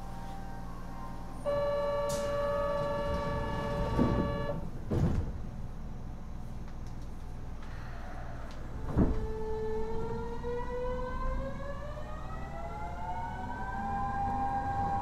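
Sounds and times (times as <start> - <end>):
train inverter whining: 0.0 - 15.0
heavy thump: 4.9 - 5.4.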